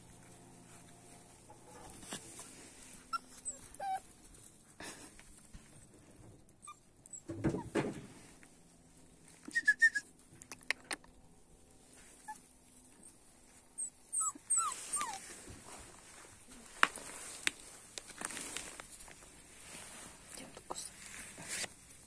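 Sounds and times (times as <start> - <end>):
puppy squeaks: 3.1 - 4.0, 13.8 - 15.2
puppies whimpering: 13.8 - 15.2.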